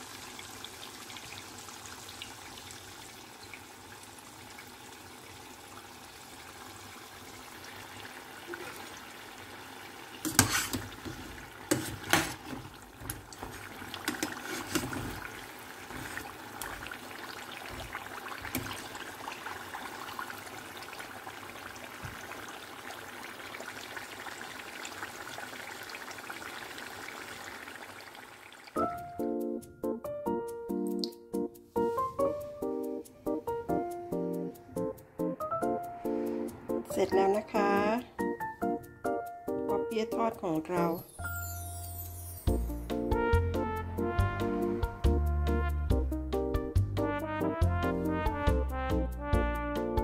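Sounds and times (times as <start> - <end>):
oil sizzling: 0.0 - 29.4, 30.7 - 45.7
metal skimmer clattering on pot: 10.3 - 15.3.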